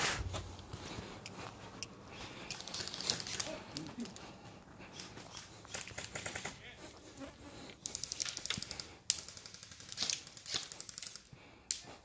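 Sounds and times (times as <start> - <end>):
airsoft gun automatic bursts: 5.7 - 6.6, 7.9 - 11.3.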